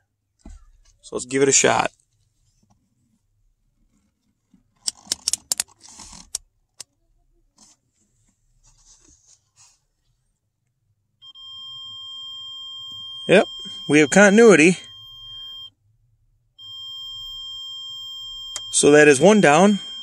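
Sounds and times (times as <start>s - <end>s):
rotary dial clicking: 4.8s - 6.4s
high continuity beep tone: 11.2s - 15.8s, 16.6s - 20.0s.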